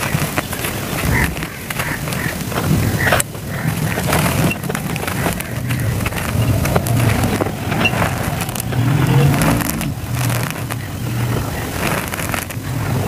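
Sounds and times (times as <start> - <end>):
grit crackling as lump crumbles: 0.0 - 13.0
low grinding rumble: 0.0 - 13.0.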